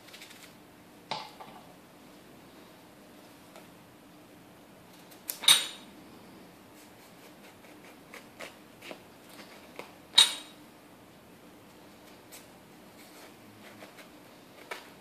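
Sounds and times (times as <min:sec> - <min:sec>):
knife scraping squash skin: 0:06.8 - 0:09.8.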